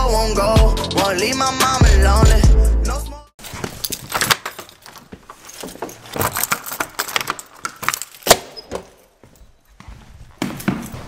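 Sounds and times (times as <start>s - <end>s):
keys jangling: 3.4s - 9.6s.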